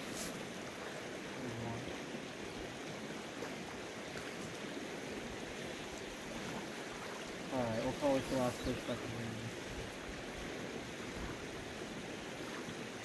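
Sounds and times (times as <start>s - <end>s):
stream rushing: 0.0s - 13.0s.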